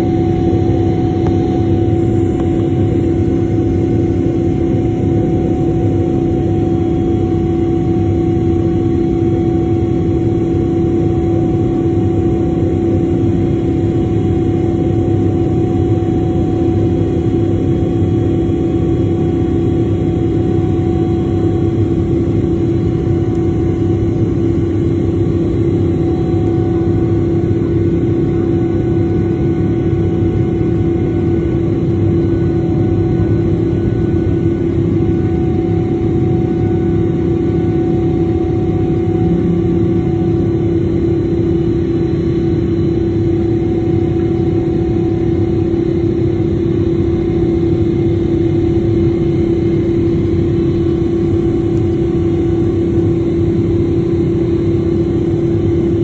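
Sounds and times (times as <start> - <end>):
strong even hum: 32.3 - 43.2.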